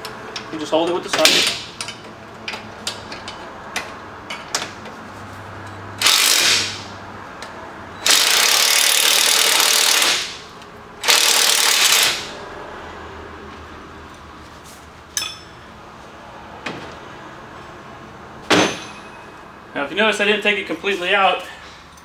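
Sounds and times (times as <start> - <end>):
power driver running: 11.0 - 12.4.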